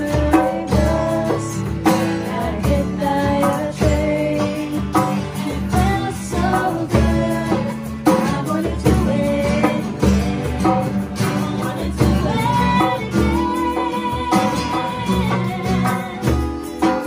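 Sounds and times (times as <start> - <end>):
acoustic guitars strumming: 0.0 - 17.0
hand drum beat: 0.0 - 17.0
women singing: 0.0 - 17.0.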